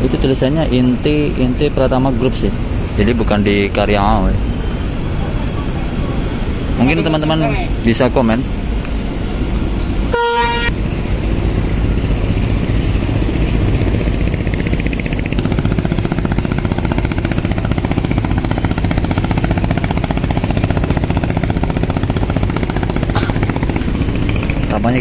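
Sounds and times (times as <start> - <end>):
boat diesel engine throbbing: 0.0 - 25.0.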